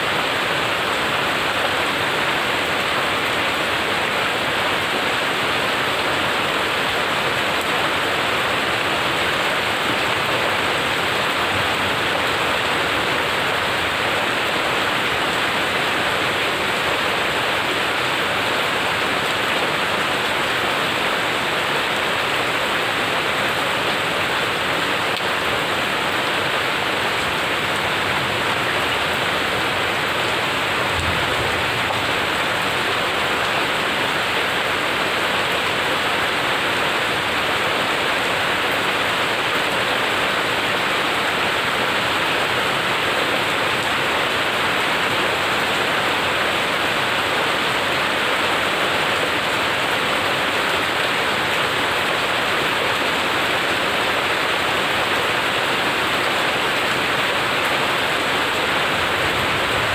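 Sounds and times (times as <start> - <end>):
heavy rain splashing on concrete: 0.0 - 59.9.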